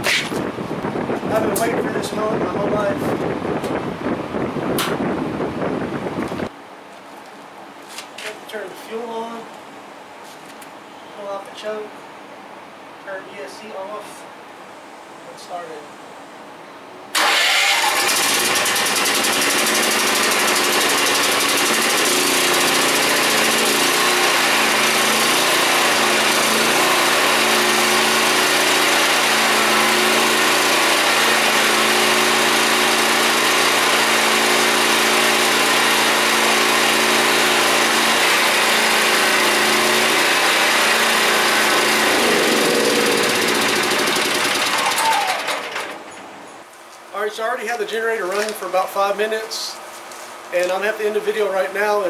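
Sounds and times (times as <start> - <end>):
generator engine running: 17.1 - 46.4.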